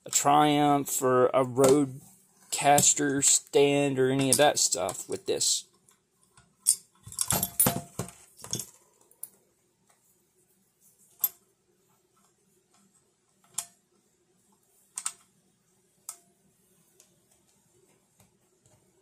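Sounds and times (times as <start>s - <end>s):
small hardware clicking and clattering: 6.3s - 9.4s.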